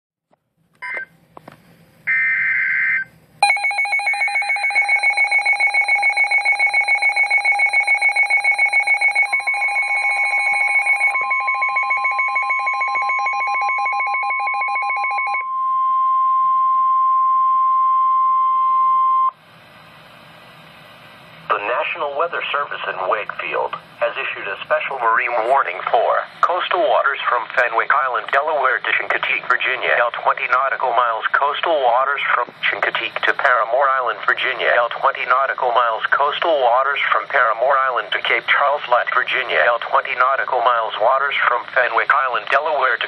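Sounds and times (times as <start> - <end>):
rapid pulsing alarm beep: 2.1 - 19.4
steady warning tone: 2.1 - 43.0.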